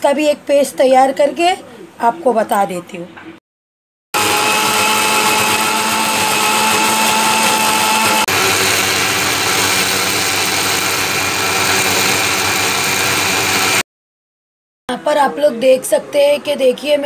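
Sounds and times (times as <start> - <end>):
mixer grinder motor whine: 4.2 - 13.8.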